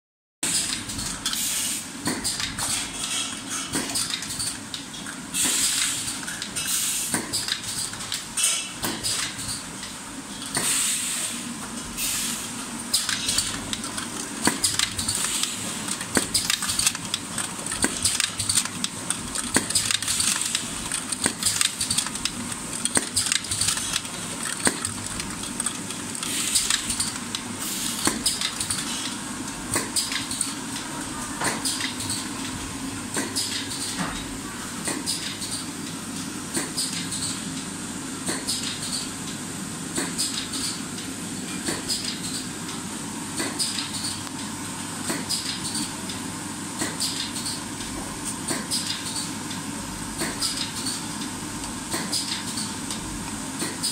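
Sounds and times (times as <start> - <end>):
machine hum: 11.4 - 33.4.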